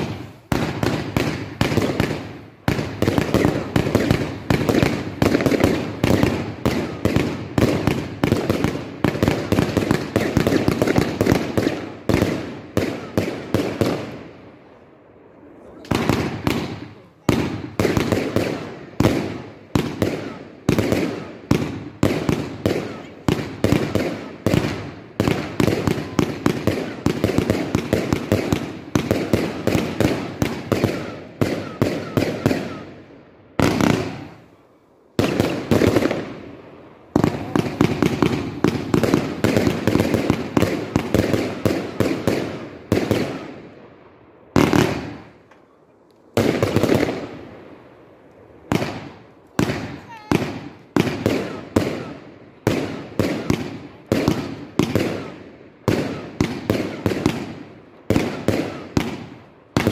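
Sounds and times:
crackling firework bursts: 0:00.0 - 0:59.9
fireworks banging: 0:00.0 - 0:59.9.

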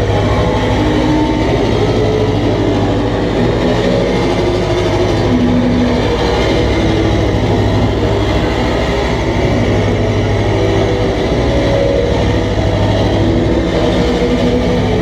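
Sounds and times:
distorted harsh noise music: 0:00.0 - 0:15.0
heavy low rumble: 0:00.0 - 0:15.0.

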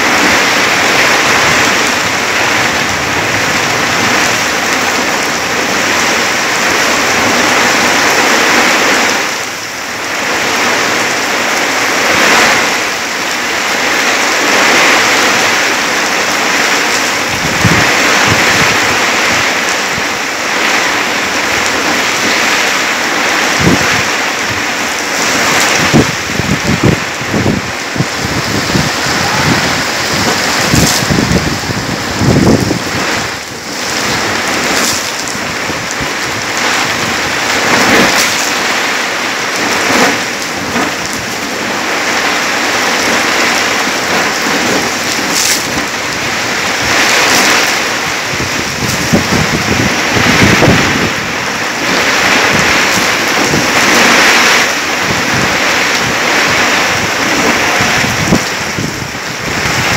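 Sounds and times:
heavy rain pouring: 0:00.0 - 0:59.9
low rumbling thumps: 0:25.2 - 0:38.2.

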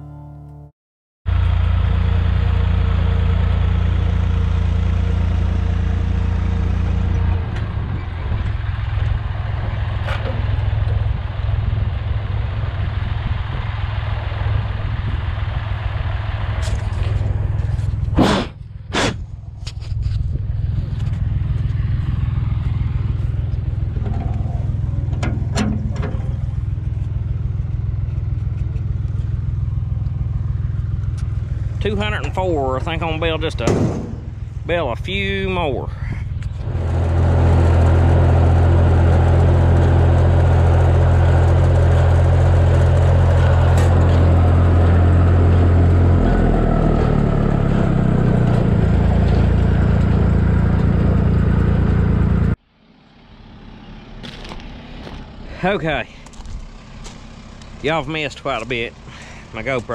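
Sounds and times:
tractor engine droning: 0:01.3 - 0:59.9
sharp knocks: 0:33.6 - 0:34.4.

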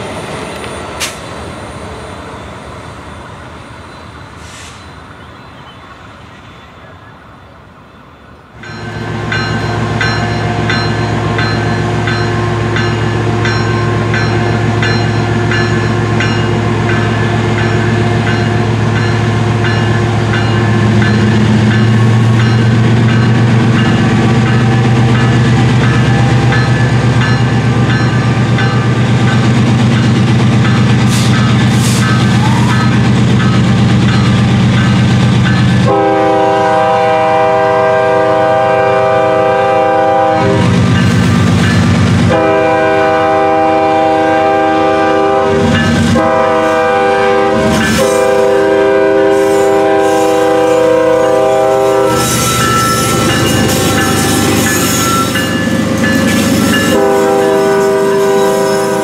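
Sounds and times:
diesel locomotive engine: 0:00.0 - 0:59.0
locomotive air horn: 0:35.8 - 0:40.8, 0:42.2 - 0:55.4, 0:56.8 - 0:59.0.

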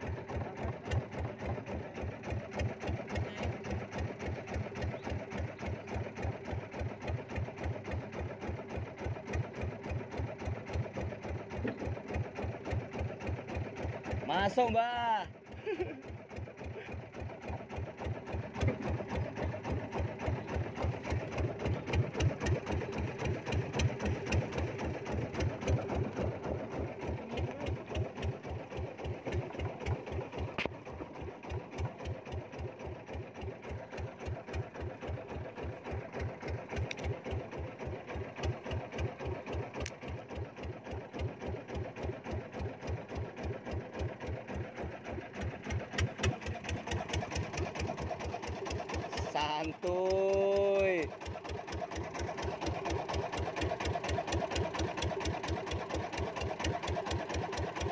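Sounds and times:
boat engine running: 0:00.0 - 0:57.9.

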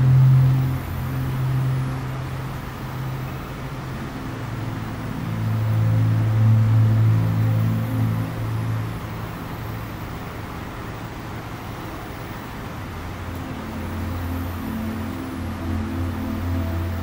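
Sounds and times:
ambient drone music: 0:00.0 - 0:17.0.

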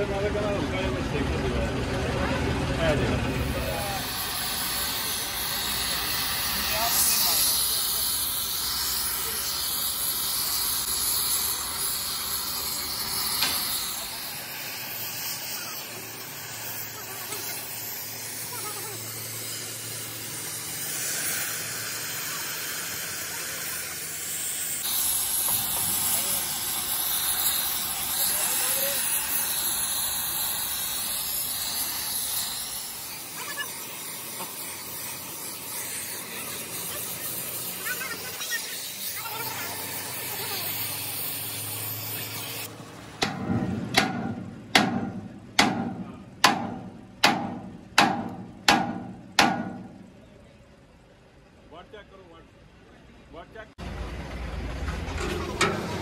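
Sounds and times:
gas torch flame hissing: 0:03.4 - 0:42.7
sledgehammer striking steel: 0:43.2 - 0:50.1.

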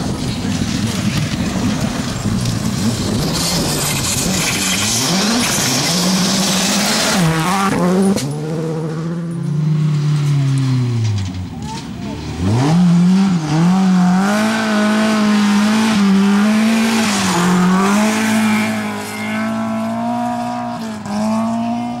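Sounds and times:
tyres on gravel: 0:00.0 - 0:12.8
rally car engine revving hard: 0:00.1 - 0:11.1, 0:12.2 - 0:22.0.

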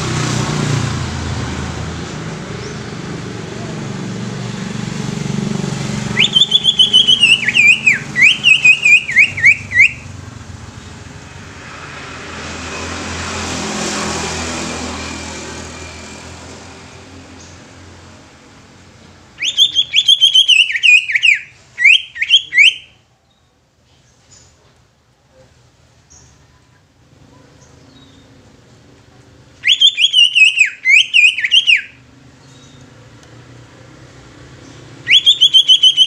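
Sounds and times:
passing vehicle: 0:00.0 - 0:22.8, 0:25.6 - 0:36.0
bird singing falling whistled notes: 0:06.1 - 0:10.2, 0:19.4 - 0:23.0, 0:29.6 - 0:32.8, 0:34.6 - 0:36.0.

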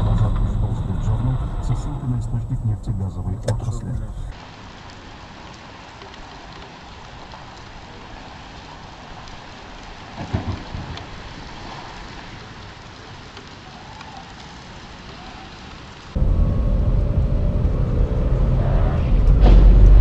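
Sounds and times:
steady hiss: 0:00.0 - 0:16.2
loud low thump: 0:19.2 - 0:20.0.

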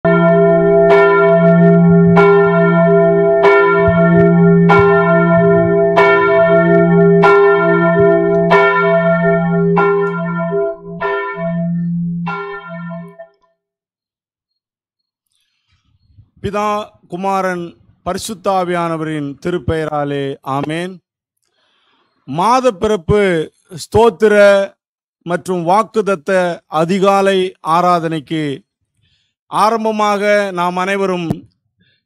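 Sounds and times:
church bell tolling: 0:00.1 - 0:13.3.

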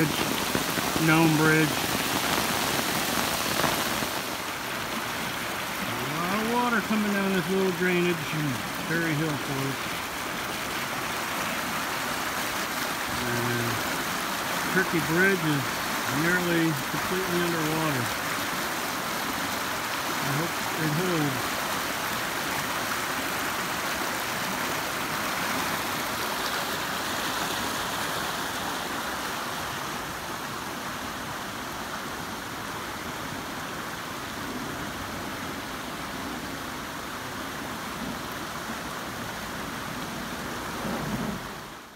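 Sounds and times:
floodwater rushing over bridge: 0:00.0 - 0:41.9.

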